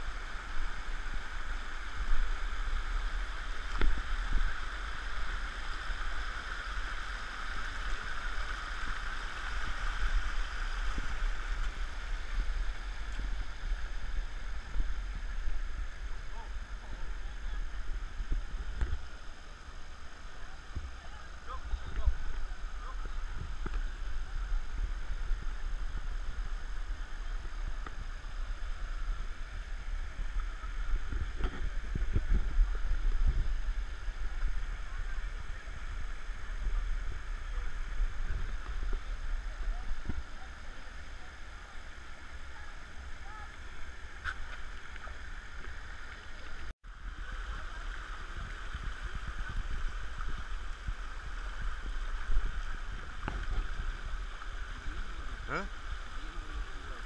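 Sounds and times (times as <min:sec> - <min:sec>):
low rumble on microphone: 0:00.0 - 0:57.0
stream water flowing: 0:00.0 - 0:57.0.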